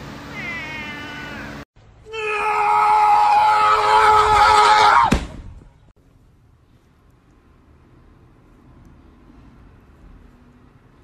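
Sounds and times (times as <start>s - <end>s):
person screaming: 2.1s - 5.1s.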